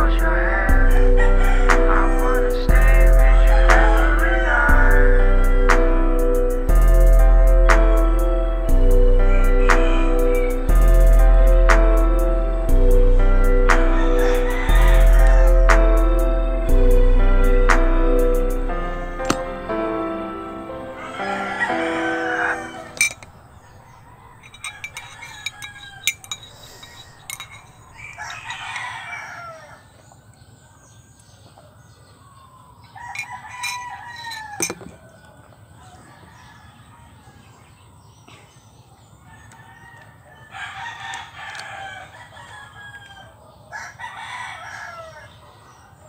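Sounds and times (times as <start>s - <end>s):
rooster crowing: 0.0s - 6.4s, 8.9s - 10.8s, 13.7s - 17.0s, 20.4s - 30.2s, 32.3s - 37.7s, 39.3s - 46.0s.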